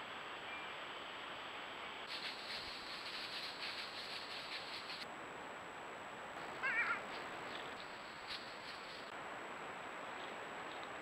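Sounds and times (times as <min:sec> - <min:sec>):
faint high-pitched whine: 0:00.0 - 0:11.0
crackling and rustling: 0:02.0 - 0:05.1, 0:06.4 - 0:09.2.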